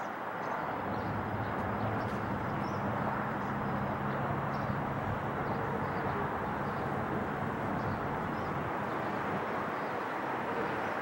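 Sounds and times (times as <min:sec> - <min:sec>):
jet airliner flying past: 0:00.6 - 0:11.0.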